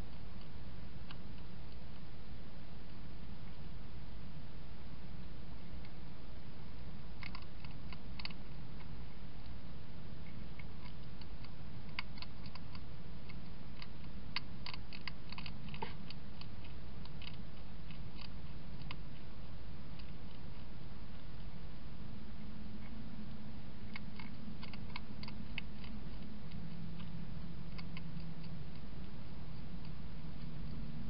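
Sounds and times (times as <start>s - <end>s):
low background hum: 0.0s - 31.0s
hedgehog crunching food: 6.9s - 9.6s, 10.2s - 31.0s.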